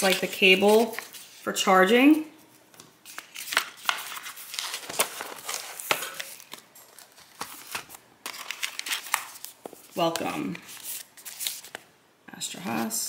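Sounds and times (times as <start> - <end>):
cardboard rustling: 3.1 - 11.8.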